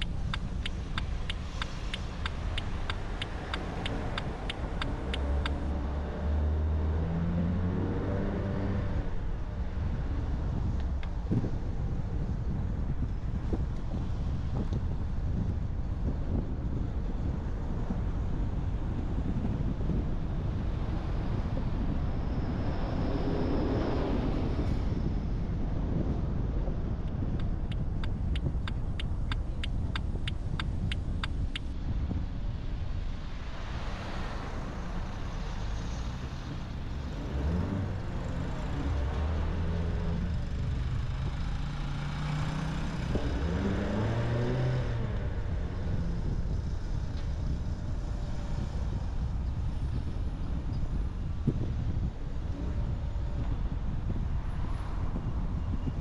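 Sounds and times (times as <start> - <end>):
regular ticking: 0.0 - 5.7, 27.6 - 31.7
passing vehicle engine: 0.0 - 11.5, 27.4 - 56.0
car road and engine noise: 0.0 - 56.0.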